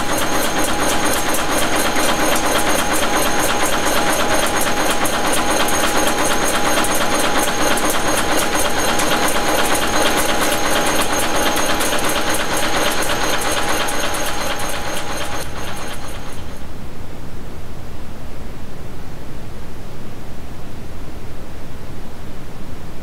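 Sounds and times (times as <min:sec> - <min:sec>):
nail making machine clatter: 0:00.0 - 0:16.6
steady machine hum: 0:00.0 - 0:18.6.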